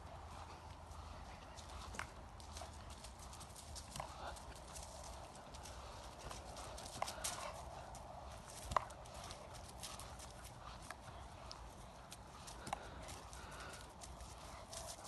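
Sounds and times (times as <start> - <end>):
dog paws crunching on gravel: 0.0 - 15.0.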